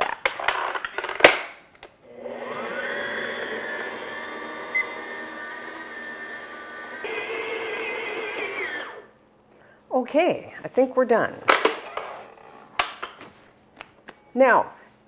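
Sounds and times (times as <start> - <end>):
mixer motor running: 2.1 - 9.1.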